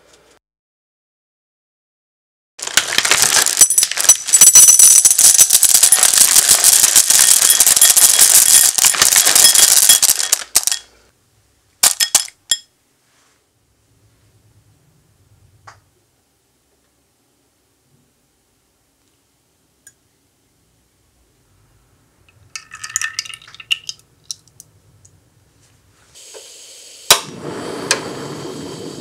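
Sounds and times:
chocolate pieces clattering into bowl: 2.6 - 10.9, 11.8 - 12.6, 22.6 - 24.6.

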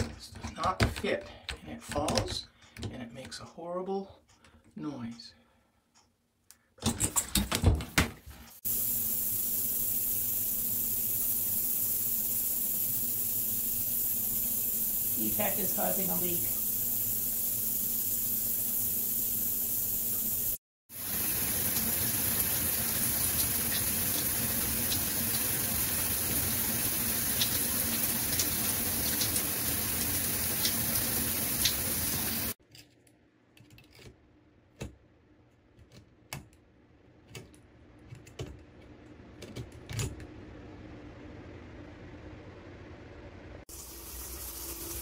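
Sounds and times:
shower water running: 8.6 - 32.6, 43.6 - 45.0.

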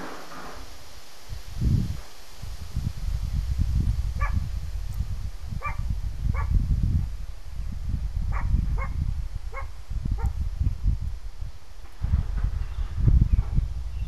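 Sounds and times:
dog barking: 4.2 - 4.4, 5.6 - 6.5, 8.3 - 10.3.

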